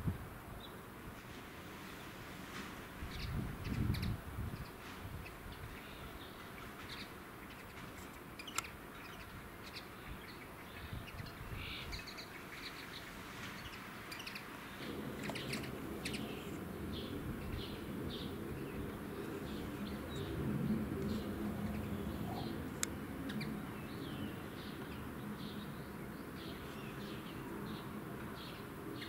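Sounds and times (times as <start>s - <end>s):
small songbirds chirping: 3.0s - 29.0s
low rumble: 14.8s - 25.9s.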